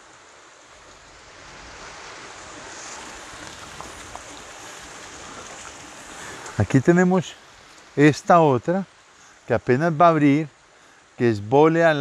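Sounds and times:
faint ticks: 5.4s - 6.6s, 7.7s - 7.9s.

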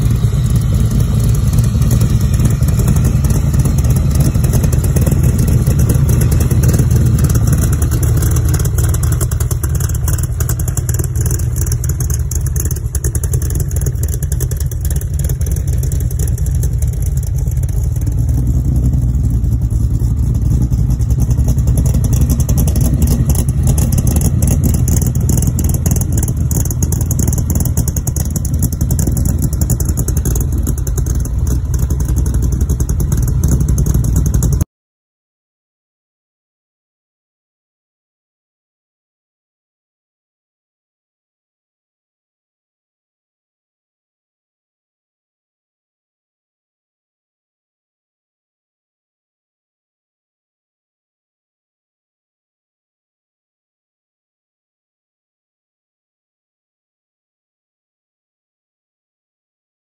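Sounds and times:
car engine idling: 0.0s - 34.6s.

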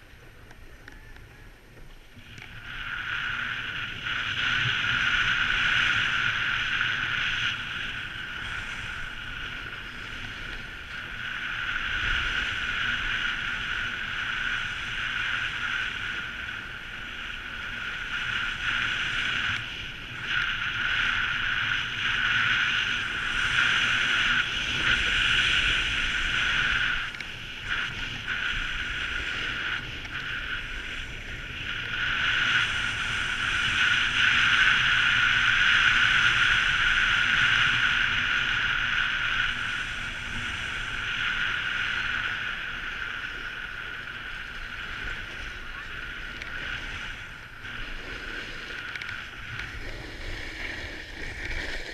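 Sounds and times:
snowboard scraping over snow: 0.0s - 51.9s
wind rumble on microphone: 0.0s - 51.9s.

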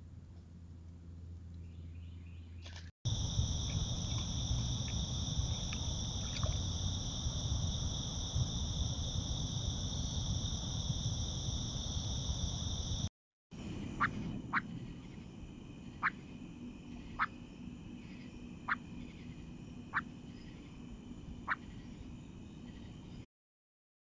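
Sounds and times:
low rumbling hiss: 3.1s - 13.0s
crickets trilling: 3.1s - 23.2s.

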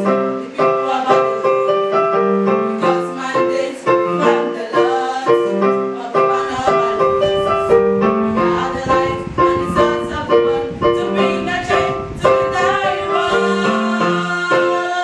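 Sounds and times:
girls singing gospel song: 0.0s - 15.0s
keyboard accompaniment: 0.0s - 15.0s.

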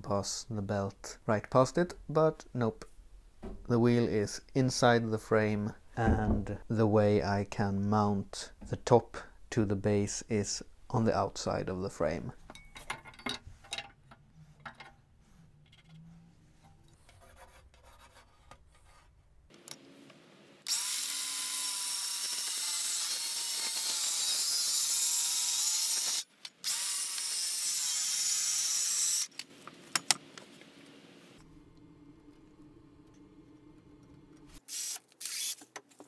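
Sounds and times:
circular saw cutting wood: 20.6s - 29.3s.

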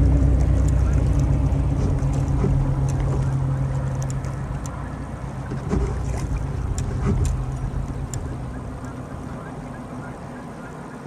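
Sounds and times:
boat motor humming: 0.0s - 11.0s
light ticks: 0.4s - 4.8s, 6.6s - 8.4s.

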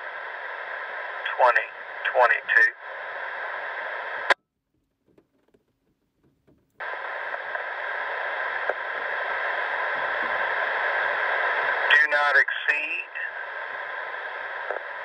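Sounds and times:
two-way radio hissing: 0.0s - 4.3s, 6.8s - 15.0s
radio squelch click: 6.8s - 15.0s.

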